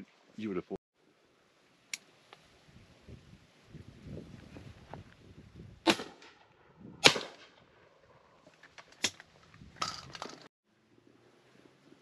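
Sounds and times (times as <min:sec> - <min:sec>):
shotgun shots: 0:05.8 - 0:06.4, 0:07.0 - 0:07.6.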